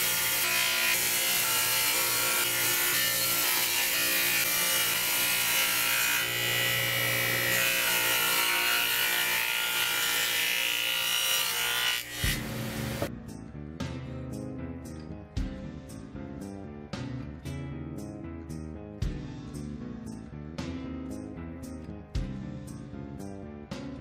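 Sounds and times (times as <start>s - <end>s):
table saw cutting wood: 0.0s - 13.1s.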